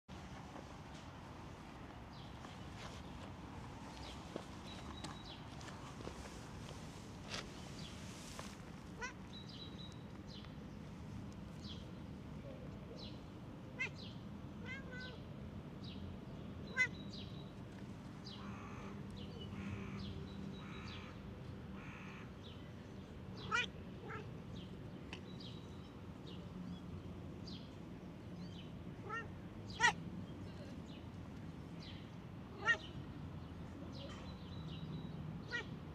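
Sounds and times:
cat meowing: 0:14.6 - 0:15.2, 0:23.5 - 0:24.3, 0:29.0 - 0:30.0, 0:32.5 - 0:33.0, 0:35.5 - 0:35.7.

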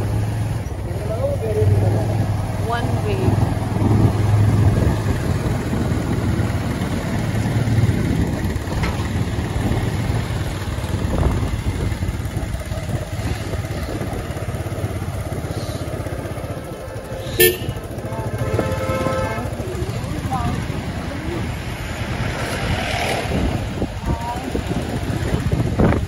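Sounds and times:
motorbike engine and road noise: 0:00.0 - 0:26.0
vehicle horn toot: 0:17.1 - 0:19.7.

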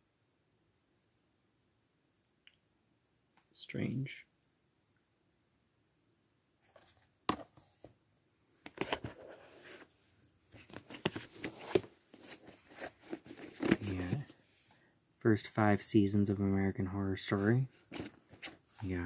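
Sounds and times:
plastic cases clattering: 0:10.6 - 0:14.4.

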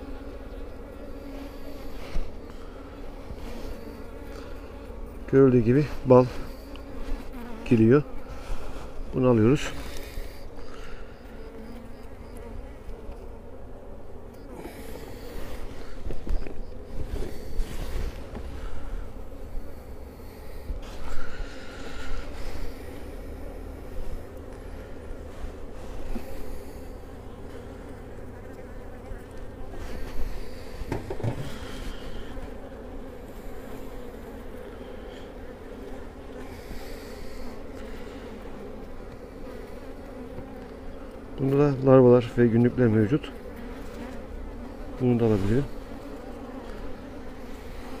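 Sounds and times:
honeybees buzzing: 0:00.0 - 0:48.0
wooden hive frames knocking: 0:30.7 - 0:31.7.

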